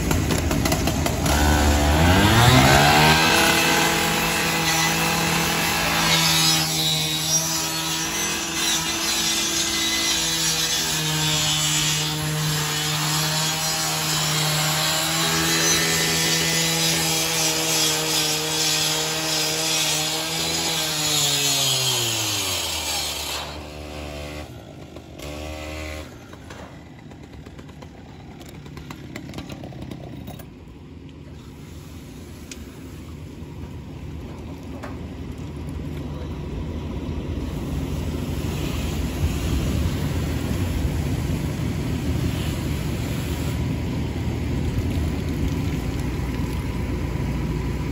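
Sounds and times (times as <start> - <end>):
rescue saw cutting sheet metal: 0.0 - 28.0
saw engine winding down: 0.7 - 10.9.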